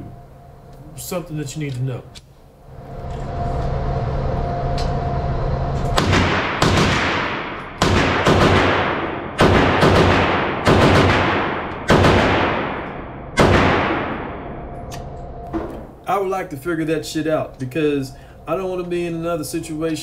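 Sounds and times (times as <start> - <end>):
steady background noise: 0.0 - 20.0
gunshots echoing: 6.0 - 14.8.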